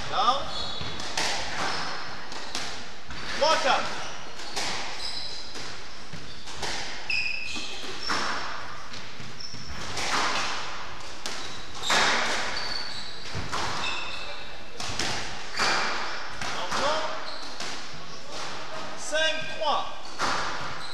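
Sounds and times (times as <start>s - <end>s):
shoes squeaking on wooden floor: 0.0s - 20.9s.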